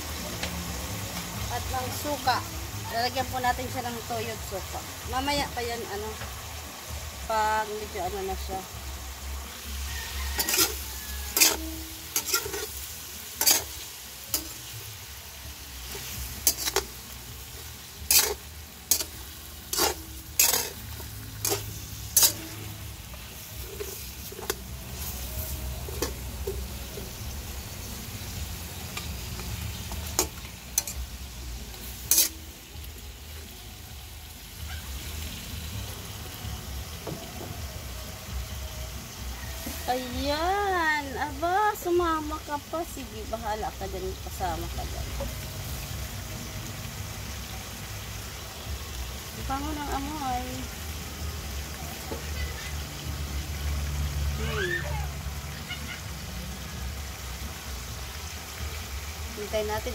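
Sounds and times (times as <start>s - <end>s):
meat sizzling in a wok: 0.0s - 59.9s
metal spatula scraping a wok: 9.7s - 32.6s.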